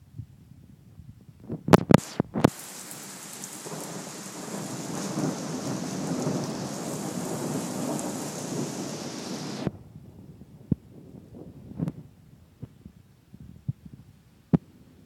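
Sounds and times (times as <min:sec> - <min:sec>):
heavy rain on metal roof: 0:01.7 - 0:12.1
deep thunder rumble: 0:01.7 - 0:13.8.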